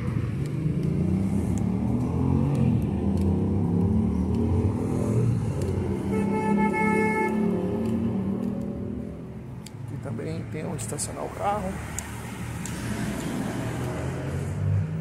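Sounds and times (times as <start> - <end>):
car horn: 6.0 - 7.6.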